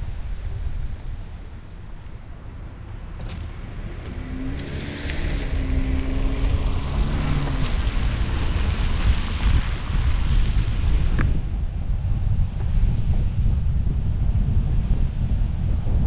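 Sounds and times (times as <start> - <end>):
low engine hum: 0.0 - 16.0
wind buffeting microphone: 0.0 - 16.0
tyres hissing on wet pavement: 3.8 - 11.4.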